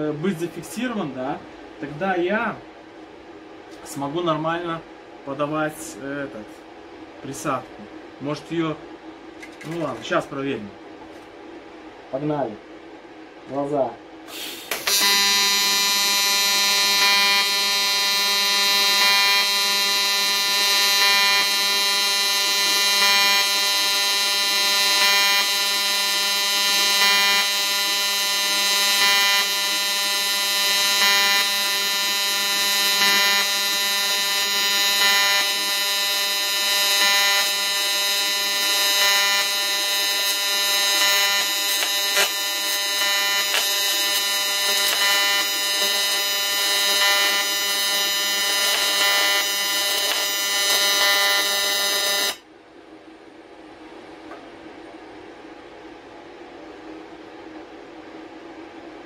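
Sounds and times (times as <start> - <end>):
welding arc buzzing: 14.3 - 52.4.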